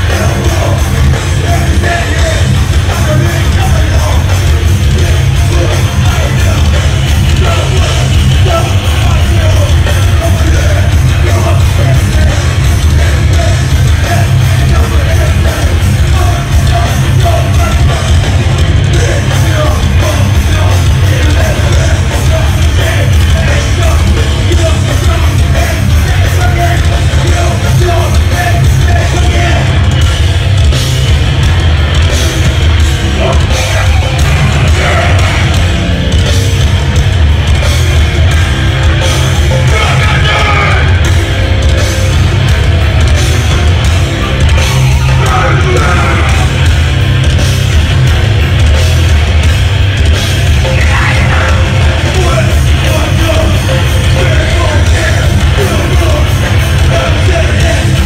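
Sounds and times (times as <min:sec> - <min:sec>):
hardcore band playing live: 0:00.0 - 0:58.0
shouted vocals: 0:33.0 - 0:35.8, 0:39.1 - 0:41.1, 0:44.2 - 0:46.7, 0:50.6 - 0:58.0.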